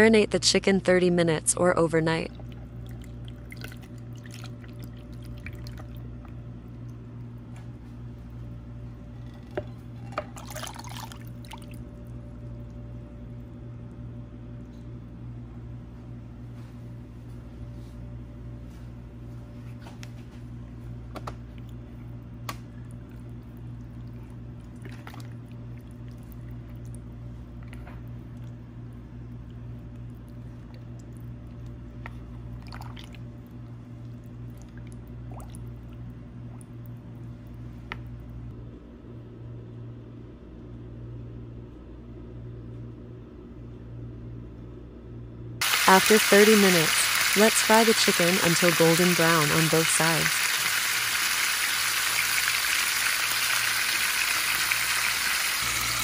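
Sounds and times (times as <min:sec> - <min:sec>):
steady low hum: 0:00.0 - 0:56.0
wet squishes of chicken in marinade: 0:21.5 - 0:28.6.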